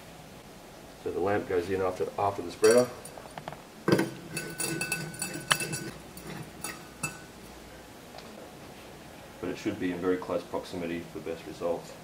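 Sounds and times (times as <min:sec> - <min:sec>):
glass bulb clinking: 0:02.6 - 0:07.4.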